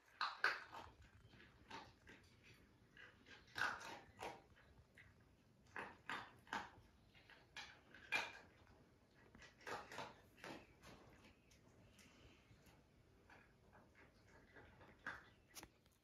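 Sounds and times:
puppies squeaking and snuffling: 0.0s - 11.7s.

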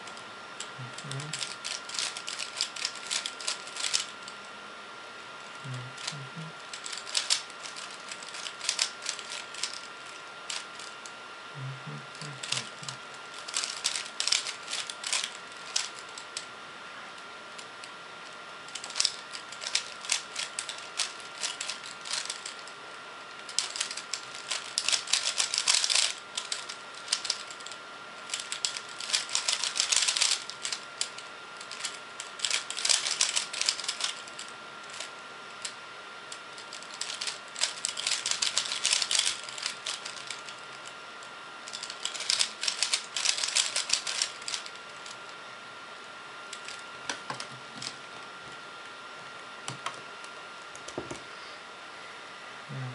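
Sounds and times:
faint high hum: 0.0s - 52.9s
puzzle cube plastic clicking: 1.0s - 4.1s, 6.8s - 9.8s, 18.7s - 22.6s, 23.5s - 27.6s, 28.3s - 34.2s, 36.7s - 40.4s, 41.7s - 44.7s.

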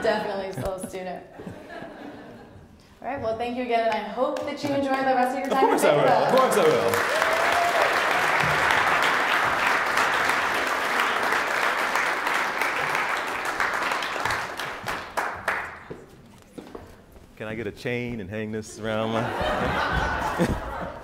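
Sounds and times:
audience applauding: 5.5s - 15.9s.

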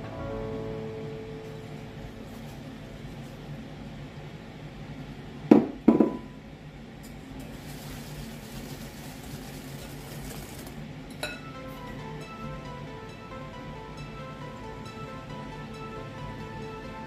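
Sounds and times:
glassware knocking: 5.6s - 6.2s
wire whisk swishing in a bowl: 7.4s - 10.8s.

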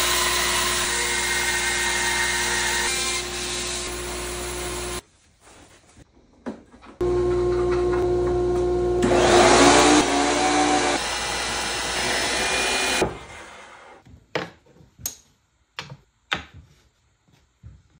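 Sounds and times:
thickness planer running: 0.0s - 5.0s, 7.0s - 13.0s.

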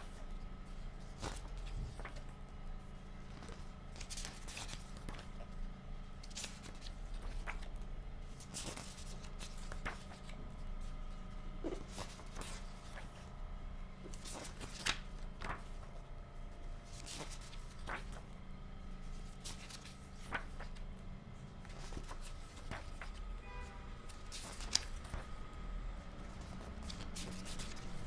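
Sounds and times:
book pages turning: 0.0s - 13.3s, 14.0s - 23.3s, 24.1s - 25.5s, 26.1s - 28.0s
faint steady hum: 0.0s - 28.0s.

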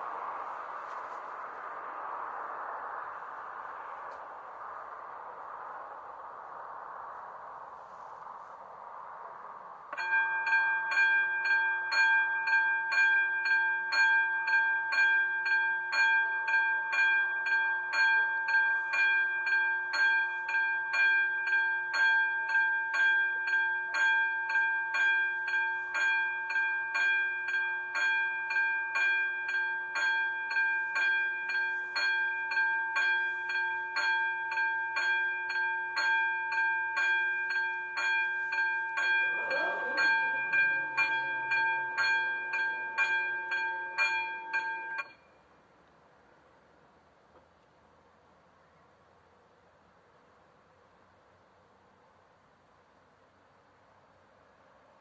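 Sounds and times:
level crossing warning bell: 9.9s - 45.5s.

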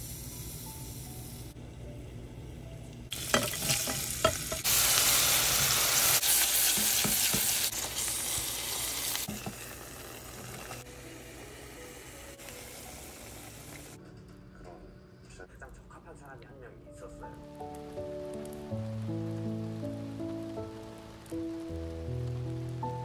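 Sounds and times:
food sizzling in hot oil: 0.0s - 1.6s, 3.1s - 14.0s, 17.5s - 23.0s.

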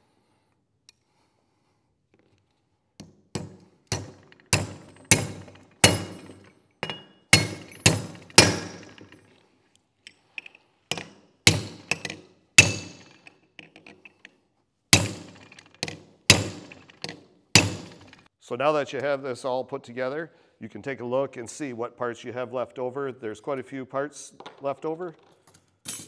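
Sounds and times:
hammer striking metal punch: 3.4s - 9.2s, 11.0s - 13.3s, 15.0s - 18.2s.

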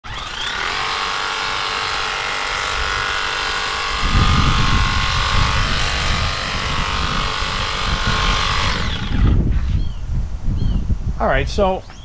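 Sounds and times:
pressure washer pump whine: 0.0s - 9.5s.

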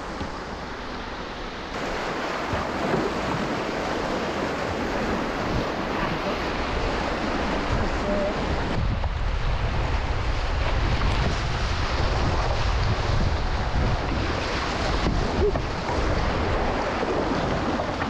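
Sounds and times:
river rapids rushing: 0.0s - 8.8s
wind rumbling on microphone: 0.0s - 18.0s.

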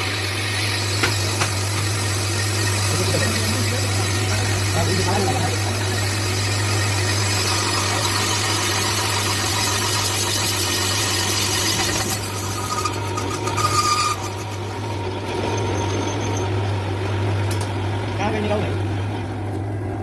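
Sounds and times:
lathe motor hum: 0.0s - 20.0s
cutting tool scraping metal: 4.0s - 16.4s
thin squeal from cut: 11.7s - 14.8s.

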